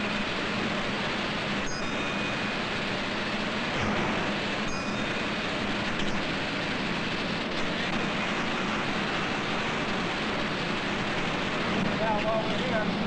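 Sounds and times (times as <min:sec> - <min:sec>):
constant low hum: 0:00.0 - 0:13.0
factory machinery roaring: 0:00.0 - 0:13.0.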